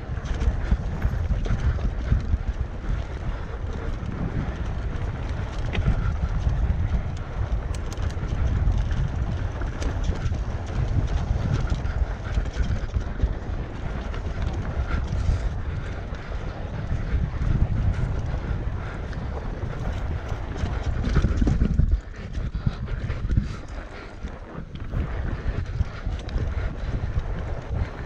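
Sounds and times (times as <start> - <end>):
bike clicks and rattles: 0.0 - 28.0
wind rushing over microphone: 0.0 - 28.0.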